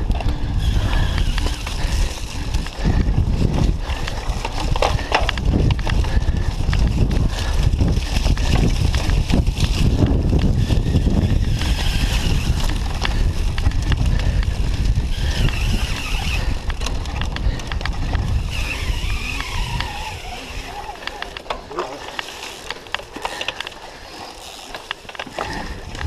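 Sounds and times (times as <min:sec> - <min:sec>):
wind buffeting microphone: 0:00.0 - 0:23.2, 0:25.3 - 0:26.0
bike rattling and knocking: 0:00.0 - 0:26.0.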